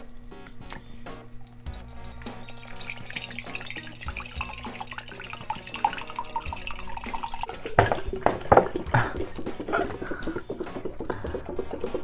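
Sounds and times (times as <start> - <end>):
drink pouring into pitcher: 1.4 - 12.0.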